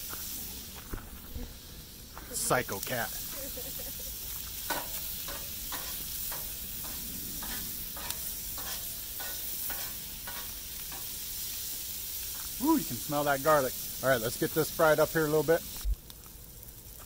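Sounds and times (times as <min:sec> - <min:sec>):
vegetables sizzling in butter: 0:00.0 - 0:17.0
metal spatula scraping griddle: 0:04.6 - 0:11.8.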